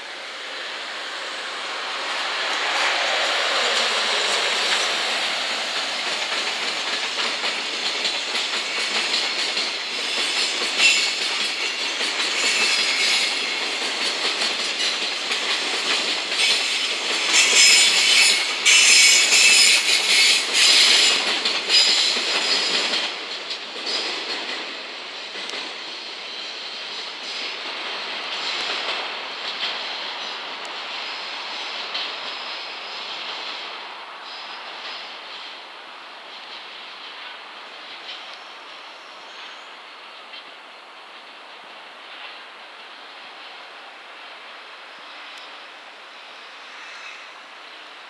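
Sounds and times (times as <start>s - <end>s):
freight train wheels clattering: 1.3s - 32.6s.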